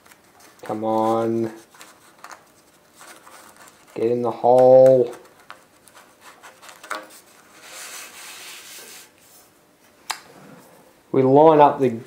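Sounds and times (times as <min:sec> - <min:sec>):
paper rubbing on metal tube: 0:00.4 - 0:04.3, 0:05.0 - 0:09.5.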